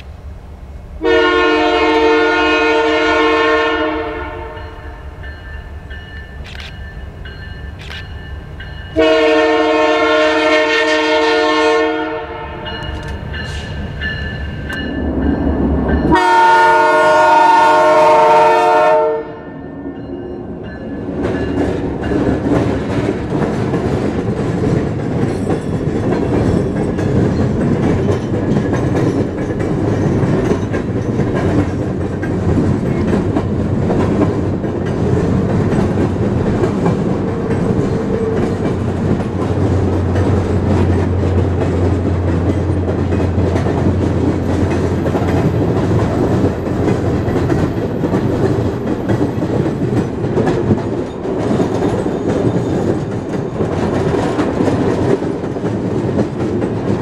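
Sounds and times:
train wheels rumbling on rails: 0.0s - 57.0s
locomotive air horn blasts: 1.0s - 5.0s, 9.0s - 12.8s, 16.1s - 19.6s.

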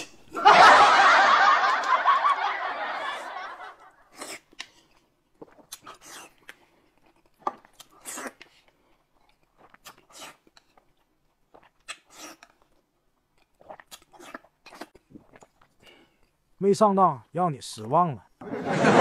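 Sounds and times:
group laughter: 0.4s - 4.1s, 18.4s - 19.0s
eating noodles: 3.8s - 16.5s.

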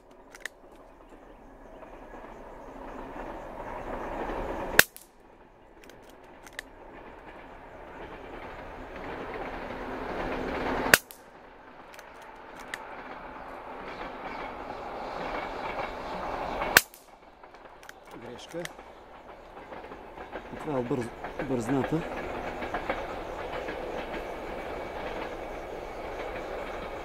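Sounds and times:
steady hiss: 0.0s - 27.0s
faint clicks: 5.8s - 6.7s, 11.9s - 12.9s, 16.7s - 24.3s.

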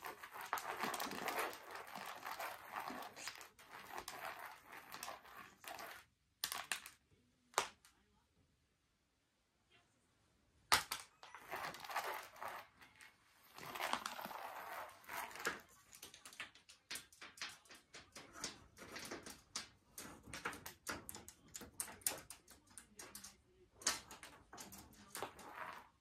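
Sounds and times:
toy wand rustling on a mat: 0.0s - 6.1s, 11.2s - 21.2s, 23.9s - 26.0s.

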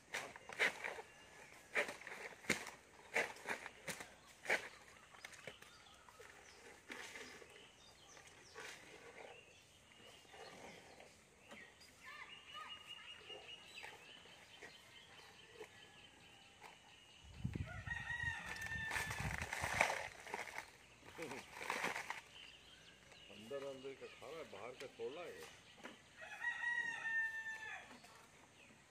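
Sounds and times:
crackling and rustling of stalks: 0.0s - 9.4s, 17.6s - 26.1s.

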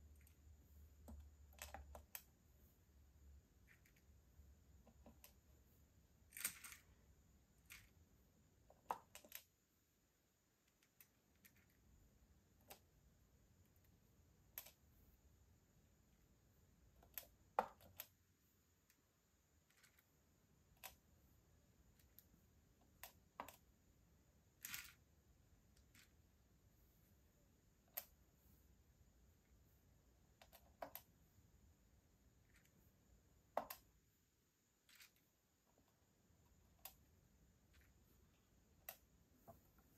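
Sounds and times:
tweezers clicking on plastic beads: 0.0s - 2.4s, 3.4s - 5.5s, 8.6s - 9.6s, 10.6s - 13.0s, 13.6s - 14.9s, 16.8s - 18.2s, 18.8s - 21.2s, 21.8s - 23.8s, 27.8s - 28.2s, 30.2s - 31.2s, 33.4s - 34.0s, 34.8s - 39.2s.

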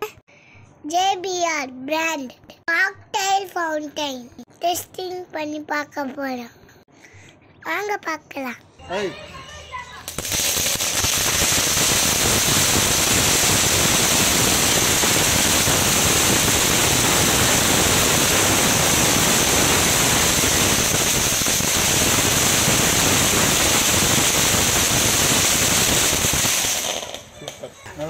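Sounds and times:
crackling fountain firework: 9.9s - 27.6s.

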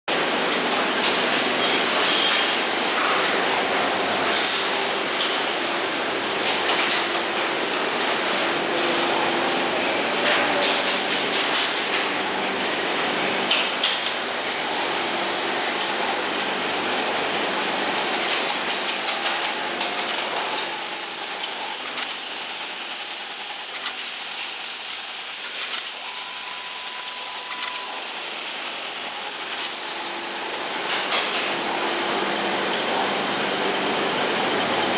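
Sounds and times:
machine clicks: 18.0s - 20.7s.

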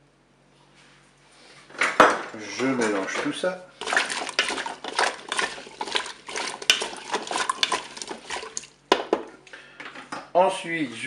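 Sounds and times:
liquid sloshing: 3.7s - 9.4s
wooden spatula scraping bowl: 3.8s - 8.8s.

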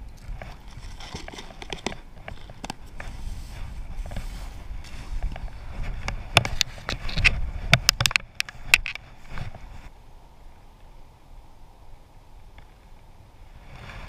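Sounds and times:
rustling through tall grass: 0.0s - 10.1s, 13.3s - 14.0s
wind rumble on microphone: 0.0s - 14.0s.

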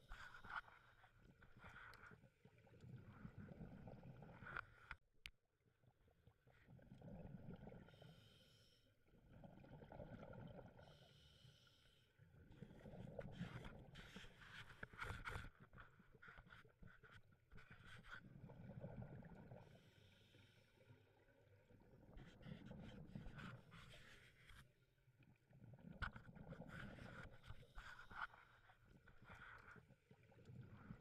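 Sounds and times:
muffled scuba breathing: 7.6s - 9.0s, 10.5s - 21.3s.

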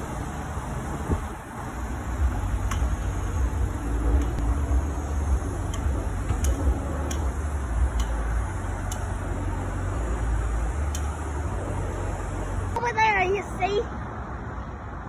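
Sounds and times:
road traffic: 0.0s - 15.0s
faint sharp ticks: 7.9s - 8.2s, 8.8s - 9.1s.

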